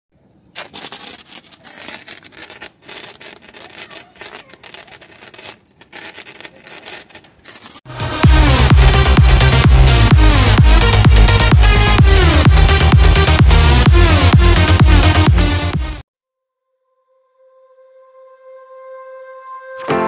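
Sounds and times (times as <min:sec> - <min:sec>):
rough crackling hiss: 0:00.5 - 0:07.8
loud electronic dance music: 0:07.9 - 0:16.0.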